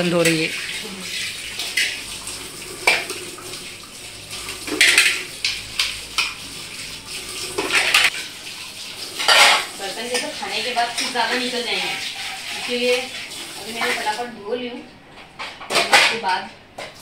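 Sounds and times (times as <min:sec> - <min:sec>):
tap running into a sink: 0:01.6 - 0:03.6
steel dishes clattering: 0:04.7 - 0:06.4, 0:09.2 - 0:13.1.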